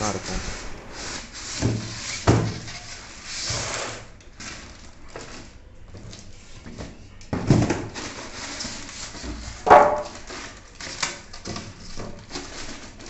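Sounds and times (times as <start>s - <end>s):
polystyrene foam rubbing: 0.0s - 2.2s.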